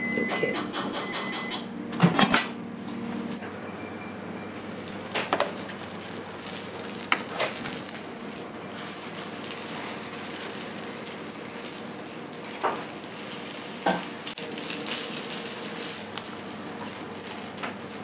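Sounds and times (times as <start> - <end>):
batter sizzling on griddle: 4.5 - 18.0.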